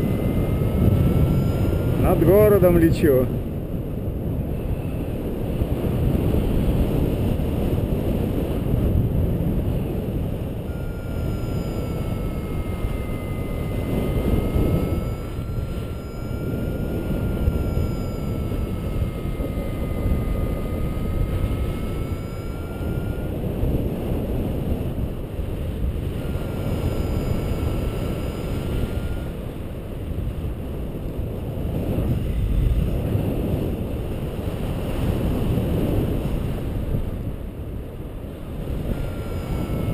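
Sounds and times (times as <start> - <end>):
airflow rushing over microphone: 0.0 - 39.9
faint wavering variometer tone: 0.0 - 39.9.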